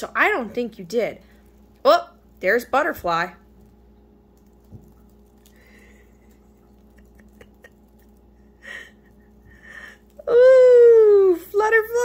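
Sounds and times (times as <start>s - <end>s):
faint motor hum: 0.0s - 12.0s.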